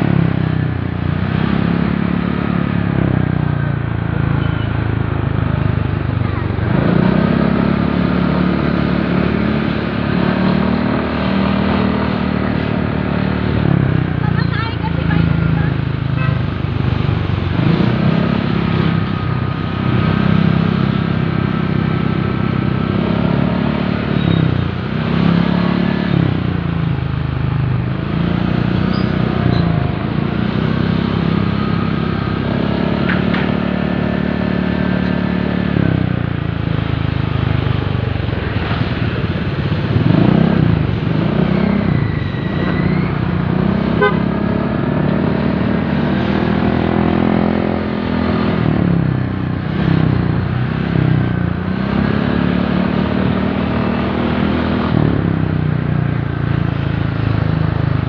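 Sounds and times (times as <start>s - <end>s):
motorcycle engine running: 0.0s - 58.0s
vehicle horn toots: 43.9s - 44.4s.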